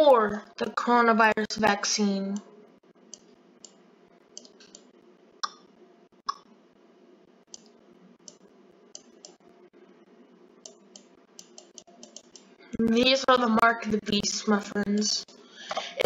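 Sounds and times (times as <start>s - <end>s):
faint room hum: 0.0s - 16.0s
computer mouse button clicking: 9.0s - 9.4s, 10.7s - 12.5s.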